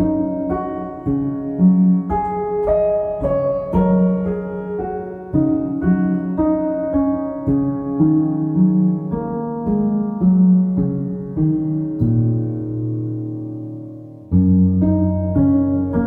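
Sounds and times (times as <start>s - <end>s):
slow piano music: 0.0s - 16.0s.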